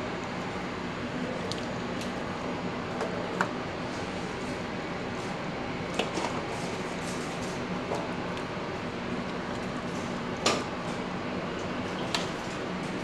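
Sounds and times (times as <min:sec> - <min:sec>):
steady background hum: 0:00.0 - 0:13.0.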